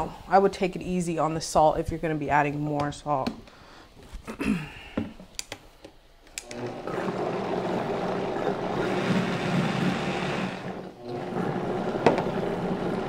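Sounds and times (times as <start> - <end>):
blender dial clicks: 6.3 - 6.7
blender motor running: 6.4 - 13.0.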